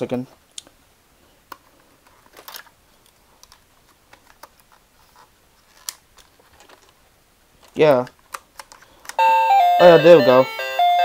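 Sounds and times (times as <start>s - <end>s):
plastic toy clicks and scratches: 3.4s - 7.0s.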